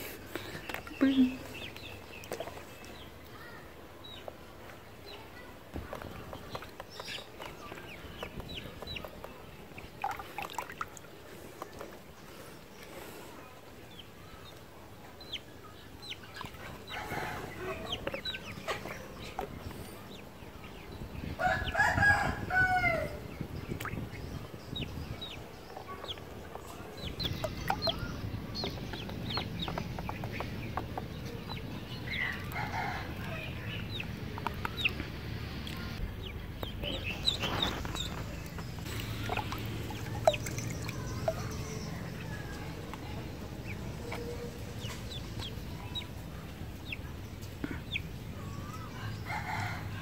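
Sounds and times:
ducklings peeping: 0:05.1 - 0:12.9, 0:13.8 - 0:49.8.

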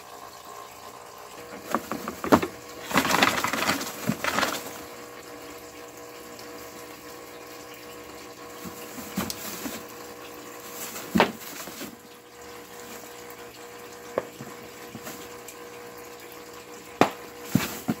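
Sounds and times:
rabbit scratching and knocking: 0:01.6 - 0:04.8.

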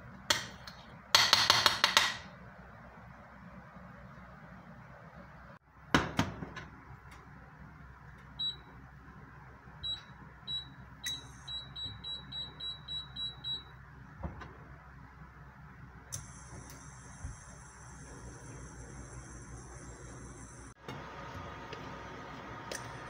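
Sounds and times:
cooktop control beeps: 0:08.4 - 0:08.8, 0:09.8 - 0:13.8.

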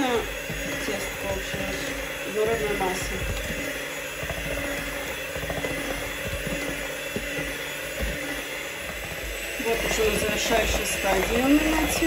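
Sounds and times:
electric hand mixer running: 0:00.0 - 0:12.0.

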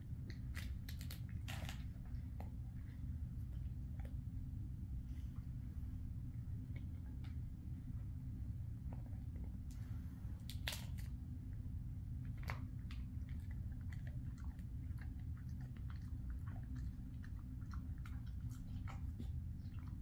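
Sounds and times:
dog crunching a hard chew: 0:00.1 - 0:04.3, 0:10.4 - 0:11.2, 0:12.2 - 0:20.0.

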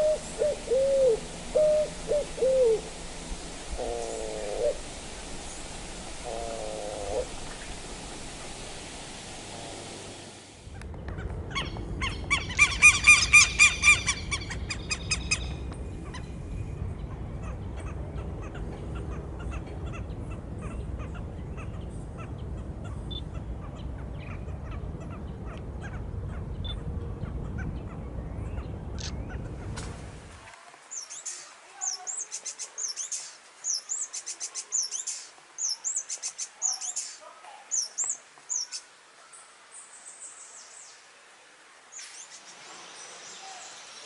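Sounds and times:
low steady rumble: 0:00.0 - 0:30.4.

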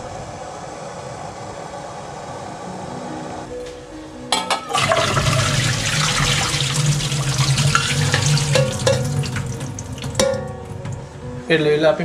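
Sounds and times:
metal clank: 0:04.3 - 0:05.2, 0:07.7 - 0:11.2
water pouring into a metal sink: 0:04.8 - 0:11.0.

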